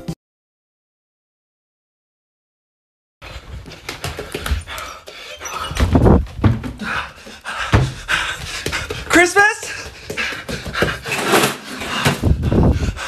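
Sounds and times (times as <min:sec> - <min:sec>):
person breathing hard: 0:03.2 - 0:05.8, 0:06.7 - 0:13.0
heavy thumps: 0:05.6 - 0:09.1
handling knocks and bumps: 0:05.6 - 0:09.2.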